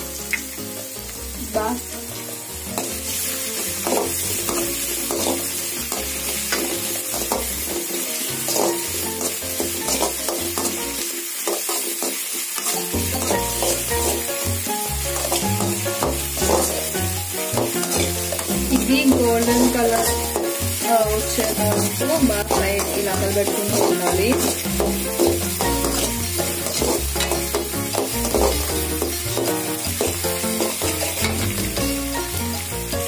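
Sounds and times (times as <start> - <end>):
vegetables sizzling in hot oil: 0.0 - 33.0
metal spoon scraping a pan: 2.2 - 14.4, 15.0 - 31.8.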